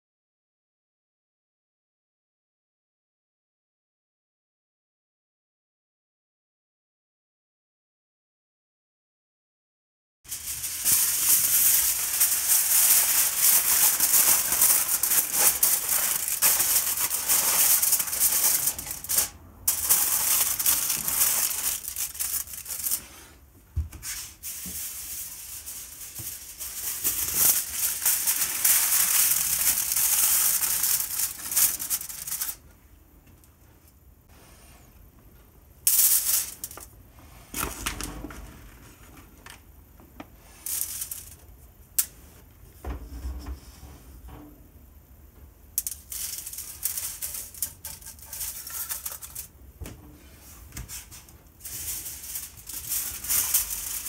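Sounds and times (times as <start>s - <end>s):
aluminium foil crinkling: 10.3s - 23.3s, 24.0s - 32.6s, 45.8s - 49.6s, 50.8s - 54.0s.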